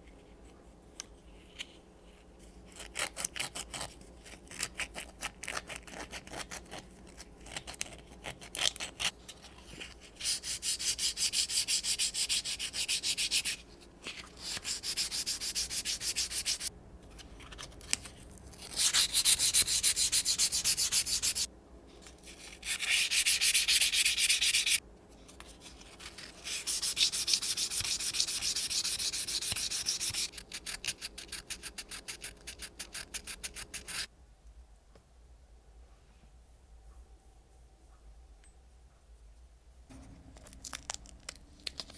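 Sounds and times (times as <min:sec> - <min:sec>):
sandpaper scratchy rubbing: 0:10.2 - 0:13.6, 0:14.3 - 0:16.7, 0:18.6 - 0:21.5, 0:22.4 - 0:24.8, 0:25.9 - 0:34.1.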